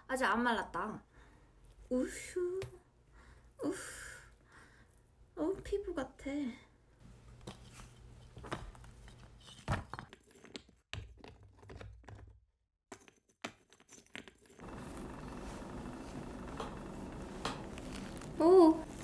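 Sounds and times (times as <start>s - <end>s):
blade scraping modelling clay: 13.8s - 19.0s.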